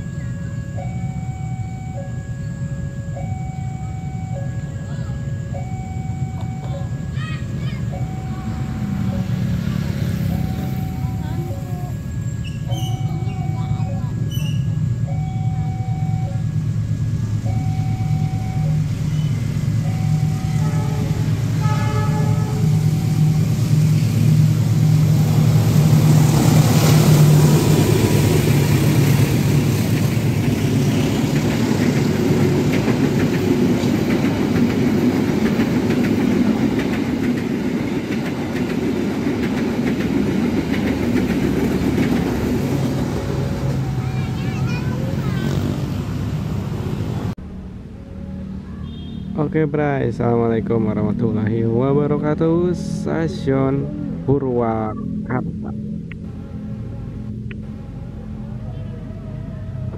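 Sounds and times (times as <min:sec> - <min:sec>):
diesel locomotive engine drone: 0:00.0 - 0:59.9
train wheels rumbling: 0:05.2 - 0:54.2.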